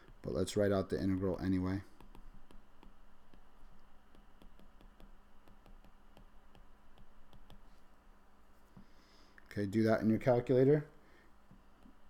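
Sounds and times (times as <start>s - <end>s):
stylus tapping on tablet screen: 0.0s - 7.9s, 11.5s - 12.0s
faint steady hum: 0.0s - 12.0s.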